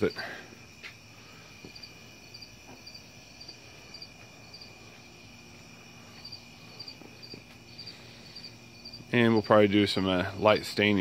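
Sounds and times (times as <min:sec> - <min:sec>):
crickets chirping: 0:00.0 - 0:11.0.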